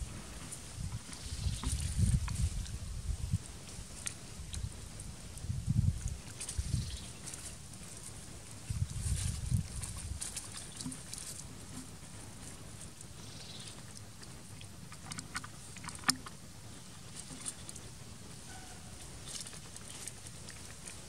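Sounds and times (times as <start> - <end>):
low steady rumble: 0.0 - 21.0
wet biting and chewing: 14.6 - 16.4.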